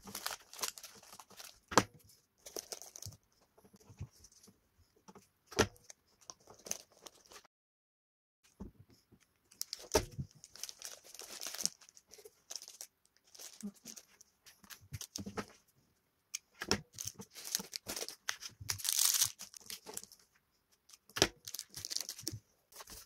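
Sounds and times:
plastic wrappers crinkling: 0:00.0 - 0:01.7, 0:02.4 - 0:03.2, 0:06.3 - 0:07.4, 0:09.5 - 0:15.3, 0:16.9 - 0:20.2, 0:20.9 - 0:23.0
knocks and clicks of packets: 0:09.7 - 0:10.7.

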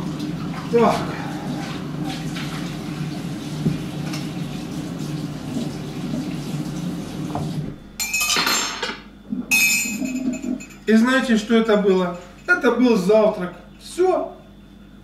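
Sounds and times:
kitchen tap running into sink: 0:00.0 - 0:07.8
dishes and cutlery clattering: 0:08.0 - 0:10.9.

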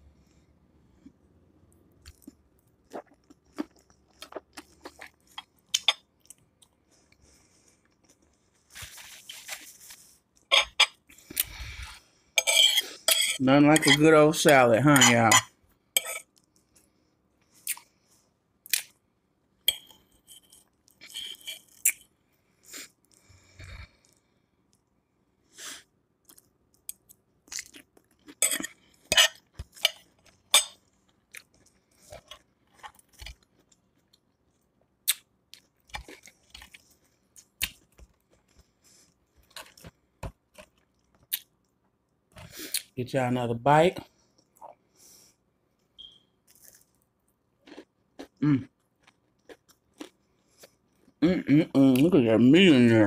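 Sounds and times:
chewing and crunching salad: 0:01.0 - 0:15.3, 0:19.6 - 0:23.3, 0:26.2 - 0:41.8, 0:46.0 - 0:51.2.

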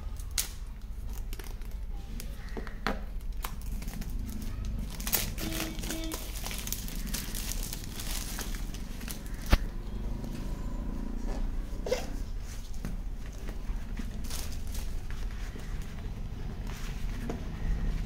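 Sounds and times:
plastic wrap crinkling and tearing: 0:00.0 - 0:09.6, 0:12.4 - 0:17.2.

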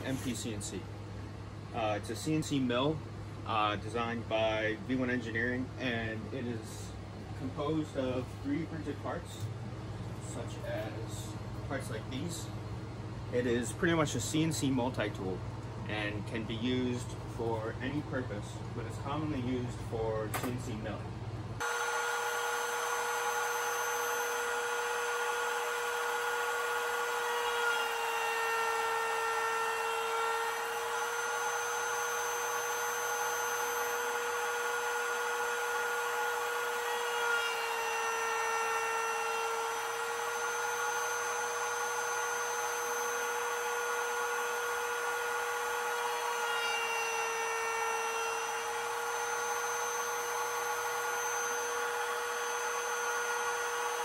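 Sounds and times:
router spindle whine: 0:21.6 - 0:54.0.

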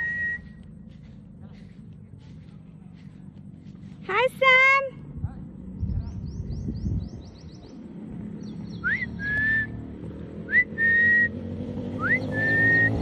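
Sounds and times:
person whistling for a dog: 0:00.0 - 0:00.6, 0:08.8 - 0:09.8, 0:10.5 - 0:11.3, 0:12.0 - 0:13.0
motorcycle engine running: 0:00.0 - 0:13.0
bird chirping: 0:05.7 - 0:11.3, 0:12.0 - 0:13.0.

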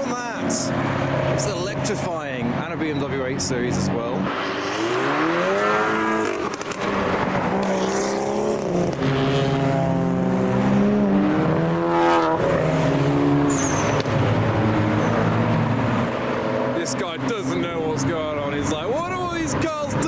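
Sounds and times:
car engine revving: 0:00.0 - 0:20.0
cars driving past: 0:00.0 - 0:20.0.

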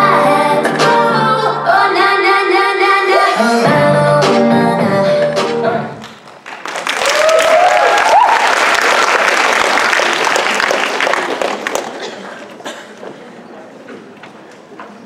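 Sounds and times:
audience applauding and cheering: 0:06.0 - 0:12.2.

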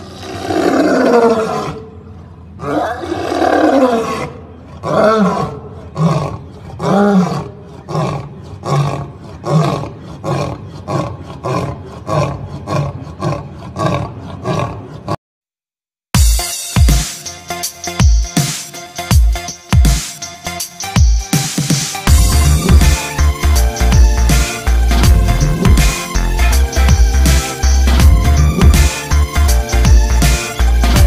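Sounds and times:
lion roaring and grunting: 0:00.0 - 0:15.2, 0:22.1 - 0:31.0
electronic music: 0:16.2 - 0:31.0.

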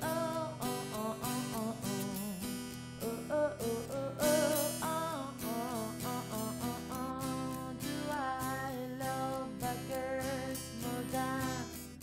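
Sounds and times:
pop song with acoustic guitar: 0:00.0 - 0:12.0.

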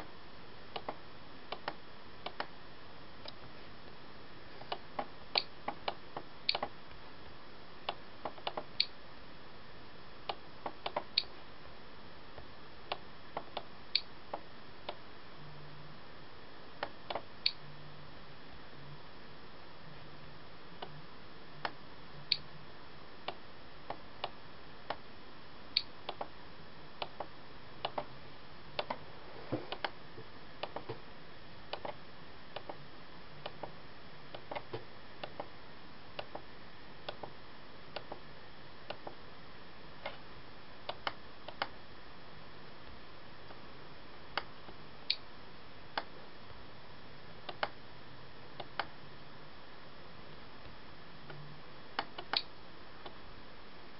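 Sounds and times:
faint low hum: 0:00.0 - 0:53.9
steady hiss: 0:00.0 - 0:53.9
computer mouse clicking: 0:00.7 - 0:02.5, 0:04.6 - 0:06.7, 0:07.9 - 0:08.9, 0:10.3 - 0:11.3, 0:25.8 - 0:26.3, 0:27.0 - 0:28.1, 0:28.8 - 0:29.0, 0:29.7 - 0:30.0, 0:30.6 - 0:31.0, 0:31.7 - 0:32.0, 0:32.6 - 0:32.8, 0:33.4 - 0:35.5, 0:37.1 - 0:37.3, 0:40.9 - 0:41.7, 0:47.5 - 0:47.8, 0:52.0 - 0:53.2.

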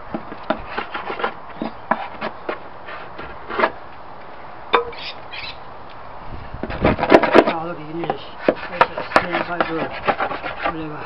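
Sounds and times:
hand tool scraping timber: 0:00.1 - 0:03.8, 0:06.6 - 0:11.0.

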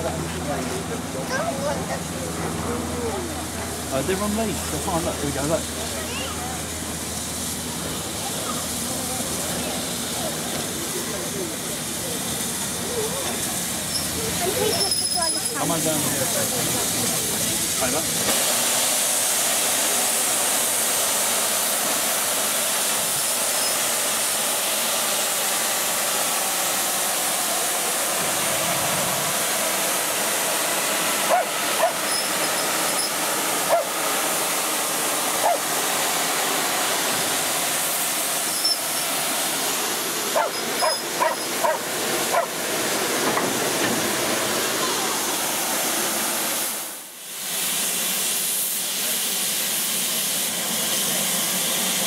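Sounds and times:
steam locomotive hissing: 0:00.0 - 0:52.0
dog yelping: 0:31.3 - 0:32.0, 0:40.4 - 0:42.5.

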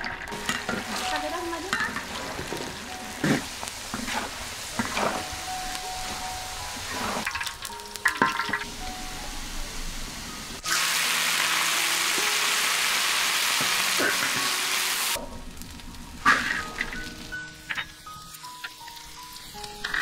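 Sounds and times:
ladle knocking wok: 0:00.0 - 0:08.7
chilies sizzling in hot oil: 0:00.0 - 0:20.0
ladle scraping wok: 0:00.4 - 0:05.4, 0:06.0 - 0:08.6, 0:16.2 - 0:17.0.

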